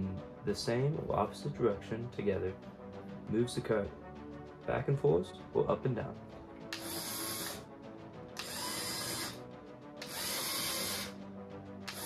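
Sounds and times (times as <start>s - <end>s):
motors whirring: 6.7s - 7.6s, 8.4s - 9.4s, 10.0s - 11.2s.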